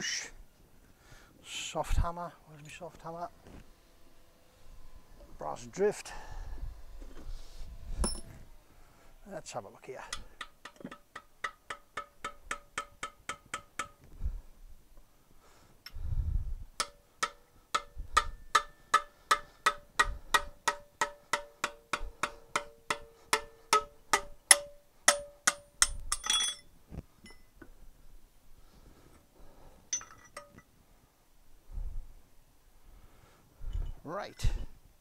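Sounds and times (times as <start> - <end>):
metallic rattle: 16.8 - 27.6, 29.9 - 30.7.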